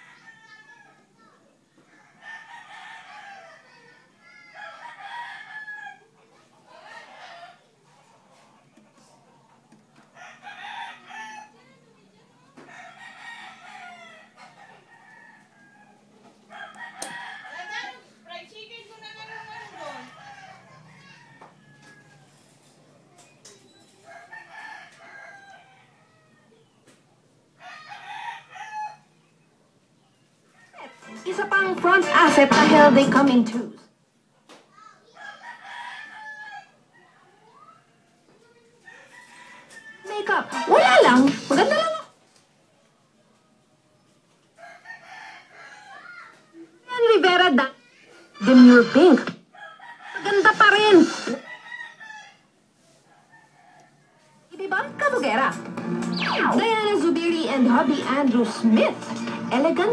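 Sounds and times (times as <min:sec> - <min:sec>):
rooster crowing: 0:00.0 - 0:07.7, 0:10.0 - 0:11.8, 0:12.6 - 0:18.4, 0:19.0 - 0:22.6, 0:23.7 - 0:26.6, 0:27.6 - 0:29.4, 0:30.4 - 0:33.0, 0:35.1 - 0:41.9, 0:44.6 - 0:46.6, 0:49.4 - 0:59.9.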